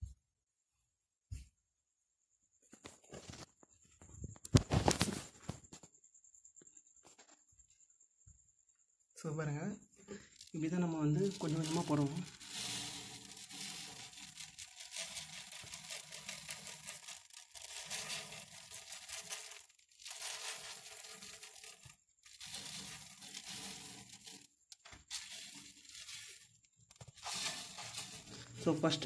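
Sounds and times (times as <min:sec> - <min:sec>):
gritty soil granules pouring: 0:10.1 - 0:29.0.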